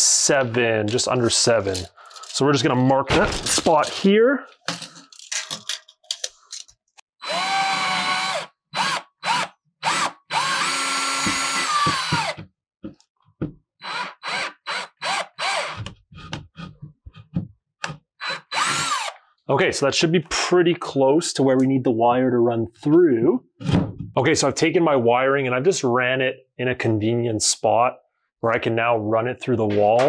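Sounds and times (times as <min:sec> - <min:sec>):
power drill boring through wall: 0:07.2 - 0:12.5, 0:13.8 - 0:16.4, 0:18.2 - 0:19.2.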